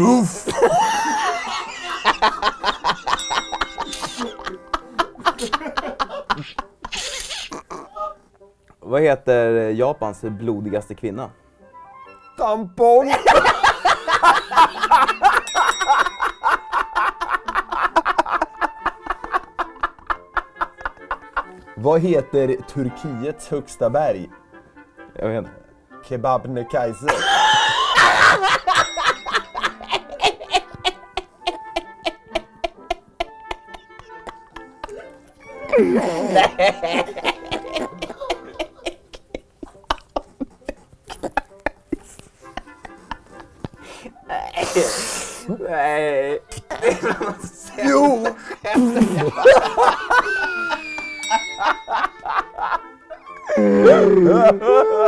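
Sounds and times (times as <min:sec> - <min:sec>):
men laughing: 0:00.0 - 0:08.2, 0:13.1 - 0:21.7, 0:27.1 - 0:55.0
music: 0:00.0 - 0:55.0
ringing chime: 0:03.0 - 0:04.8, 0:14.2 - 0:17.0, 0:28.3 - 0:30.2, 0:51.0 - 0:52.6.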